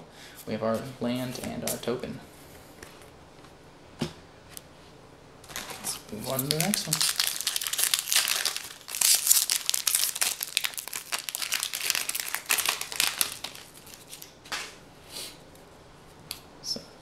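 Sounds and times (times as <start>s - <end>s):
foil wrapper crinkling and tearing: 5.4s - 14.4s.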